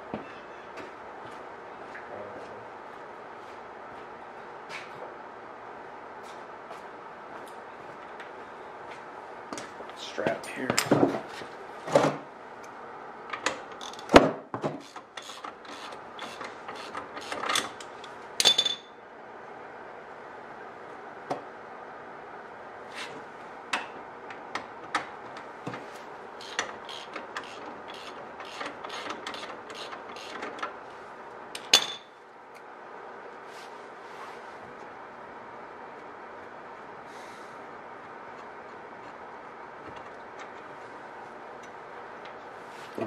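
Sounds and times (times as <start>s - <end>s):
ratchet wrench clicking: 26.4s - 30.4s.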